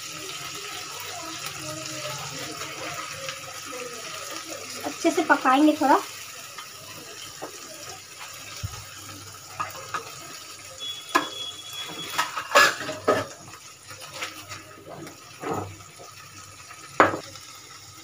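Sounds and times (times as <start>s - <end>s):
sauce simmering and bubbling: 0.0s - 18.0s
spatula scraping pan: 11.1s - 13.4s, 14.0s - 16.1s.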